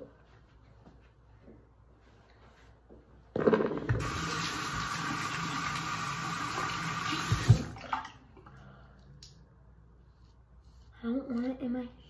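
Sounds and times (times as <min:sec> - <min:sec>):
water running from tap: 0:04.0 - 0:08.0.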